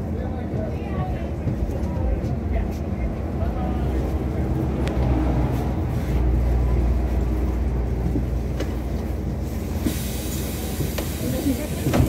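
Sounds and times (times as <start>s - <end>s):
low street rumble: 0.0s - 12.0s.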